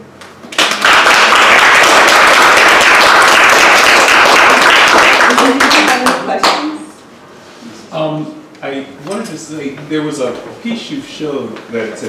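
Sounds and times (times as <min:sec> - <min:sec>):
audience applauding: 0:00.5 - 0:06.6.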